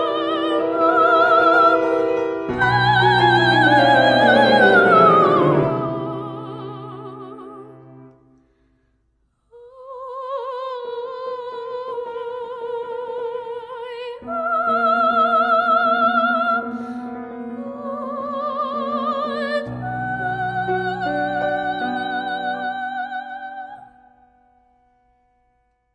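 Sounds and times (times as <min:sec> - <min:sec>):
piano playing repeated chords: 0:00.0 - 0:08.1
soprano singing with vibrato: 0:00.0 - 0:08.1, 0:09.6 - 0:24.2.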